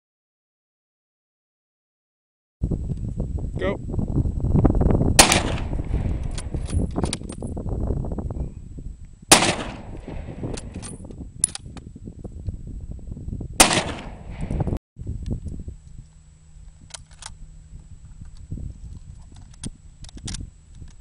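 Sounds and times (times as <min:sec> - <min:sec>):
rifle shots with echo: 0:05.2 - 0:06.6, 0:09.3 - 0:10.7, 0:13.6 - 0:14.7
rifle bolt clicks: 0:09.6 - 0:11.6.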